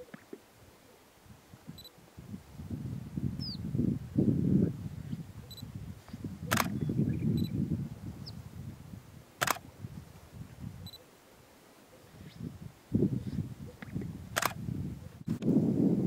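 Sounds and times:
grouse sharp pops: 0:00.0 - 0:00.4, 0:06.4 - 0:06.9, 0:09.4 - 0:09.7, 0:13.7 - 0:14.6.

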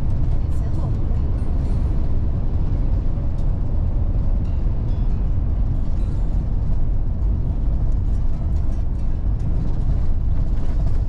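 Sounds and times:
diesel engine and tyres rumbling: 0:00.0 - 0:11.0.

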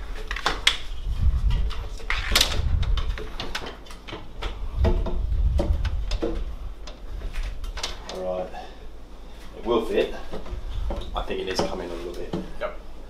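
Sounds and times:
clicks and knocks on glass: 0:01.5 - 0:07.0
low handling thuds: 0:04.3 - 0:08.1.

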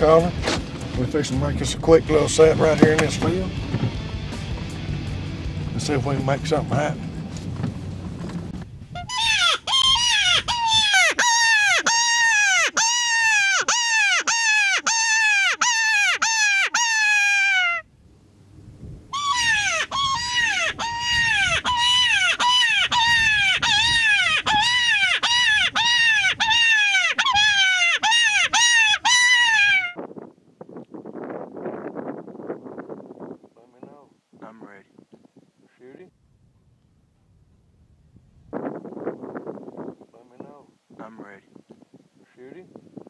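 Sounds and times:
predator call distress cries: 0:09.0 - 0:17.9, 0:19.1 - 0:30.0.

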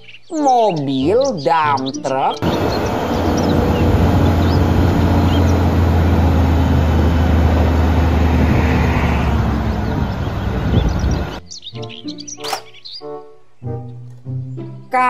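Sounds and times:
diesel truck engine humming: 0:02.4 - 0:11.4.

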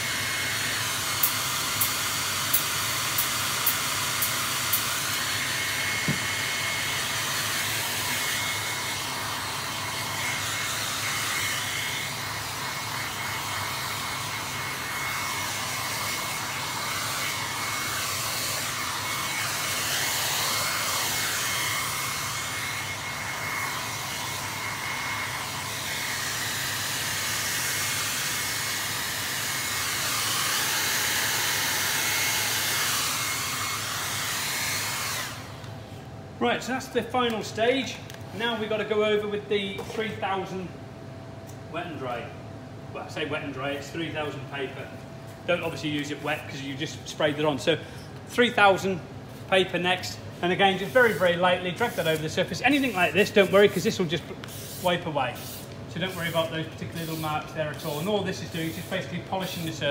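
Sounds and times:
hair dryer blowing: 0:00.0 - 0:35.8, 0:49.6 - 0:59.9.

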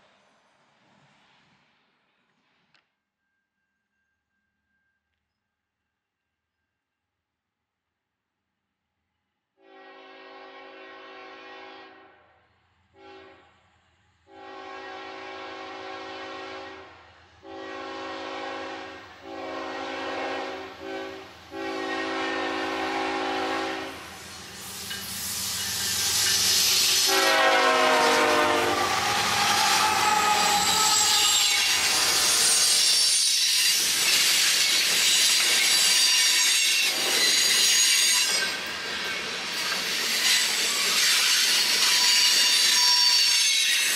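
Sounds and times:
locomotive air horn blasts: 0:09.6 - 0:12.2, 0:13.0 - 0:13.5, 0:14.3 - 0:24.1, 0:27.0 - 0:33.3
train wheels squealing: 0:24.1 - 0:27.2, 0:28.8 - 0:43.9.

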